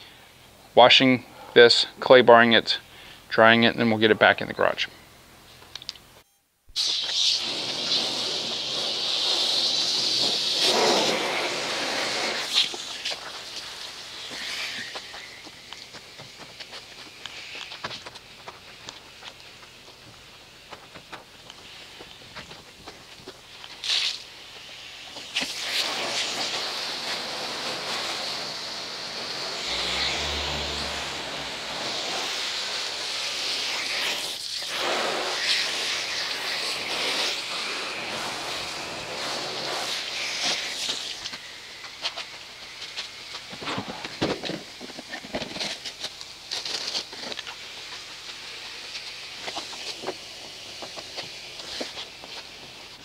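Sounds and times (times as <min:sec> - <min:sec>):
water spraying from hose nozzle: 0:06.8 - 0:17.9, 0:23.4 - 0:43.5, 0:44.6 - 0:53.0
low hum: 0:29.0 - 0:32.3.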